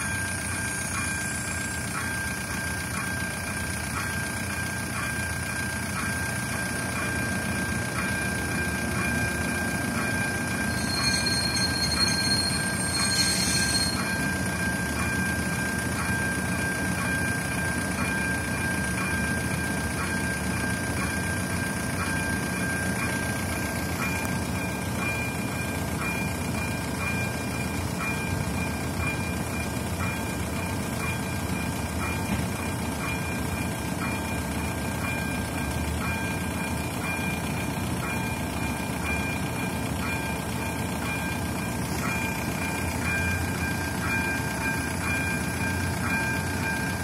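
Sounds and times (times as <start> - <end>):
high wheel squeal: 0.0 - 3.0, 9.0 - 18.8
level crossing bell ringing: 0.0 - 47.0
locomotive engine rumble: 0.0 - 47.0.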